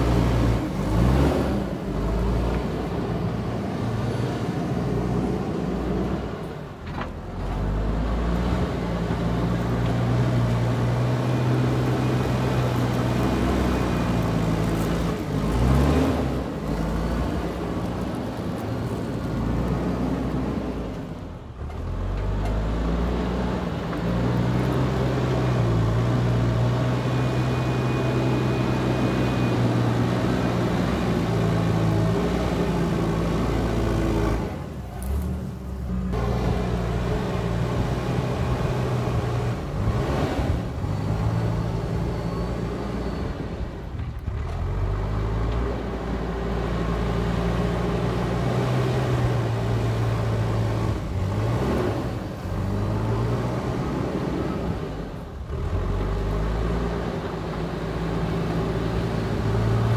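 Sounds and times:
diesel engine working under load: 0.0s - 59.9s.

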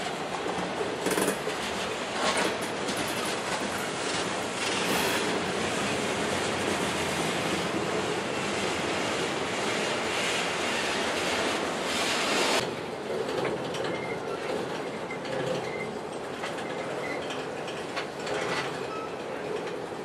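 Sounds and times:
train wheels clicking over rail joints: 0.0s - 20.0s
loud steady rushing noise: 3.3s - 12.7s
faint wheel squeals: 18.8s - 19.4s.

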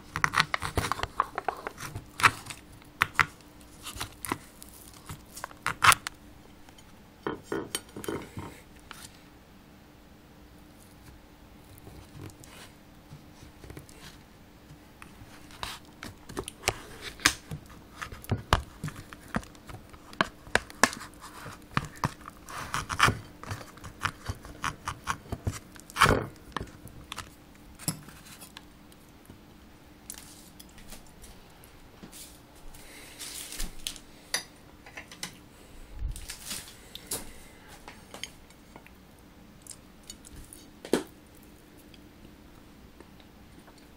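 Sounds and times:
faint steady hum: 0.0s - 43.9s
knife scraping on foil: 20.8s - 26.1s.

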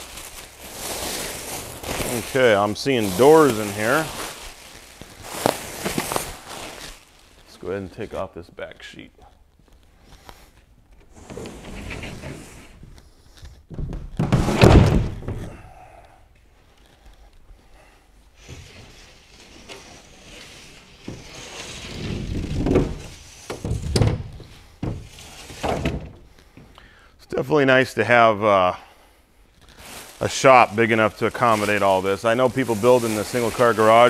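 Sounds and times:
wood scraping and knocking: 11.0s - 15.6s, 18.4s - 26.7s
loud wooden thunk: 13.7s - 15.5s.

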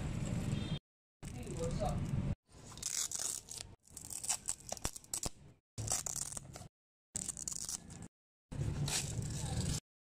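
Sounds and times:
velcro strap tearing open: 2.7s - 8.1s.

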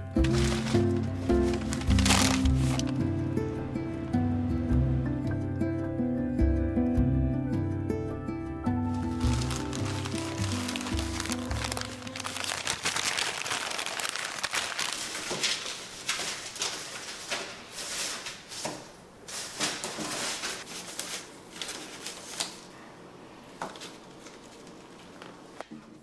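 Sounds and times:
newspaper rustling and crinkling: 0.0s - 3.0s, 8.9s - 22.8s, 23.6s - 25.5s
flower stems handled on paper: 0.2s - 3.0s, 8.9s - 22.7s.

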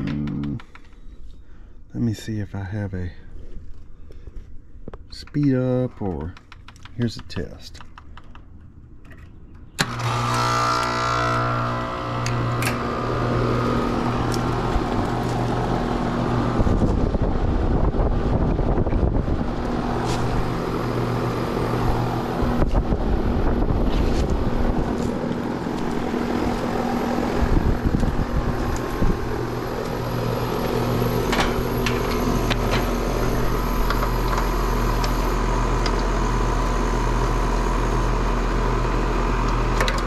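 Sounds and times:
compressor humming and fan running: 0.0s - 40.0s
heat pump click: 12.2s - 17.1s, 24.2s - 35.2s.

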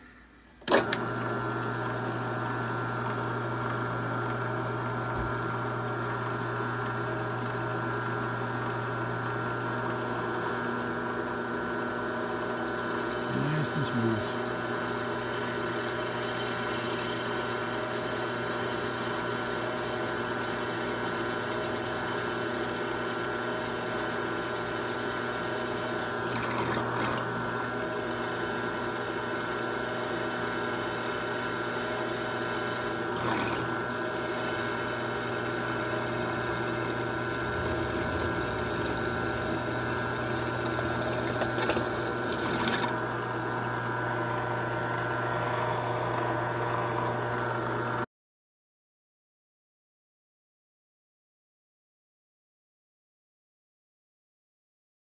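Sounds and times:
drill press drilling metal: 11.4s - 43.0s.

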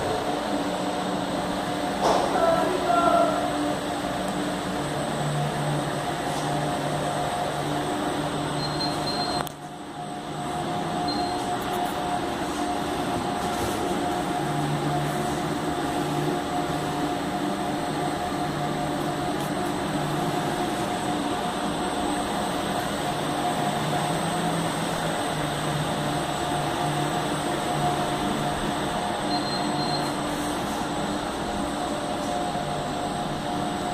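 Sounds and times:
printer whirring and whining: 0.0s - 33.9s.

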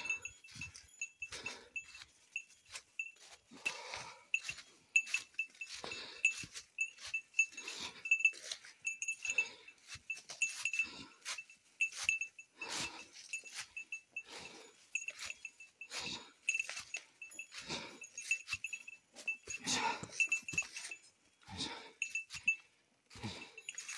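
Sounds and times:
person breathing: 0.0s - 22.5s, 23.1s - 23.9s
footsteps rustling on trail: 0.0s - 23.9s
small bell tinkling: 0.0s - 23.9s.

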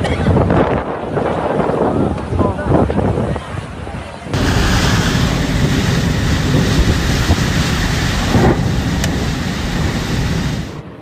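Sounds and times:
gusting wind on microphone: 0.0s - 11.0s
heavy rain: 4.4s - 10.8s.

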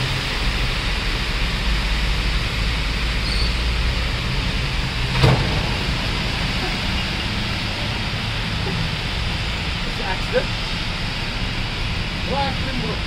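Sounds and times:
heavy rain hissing: 0.0s - 13.0s
low rumble: 3.8s - 12.2s.

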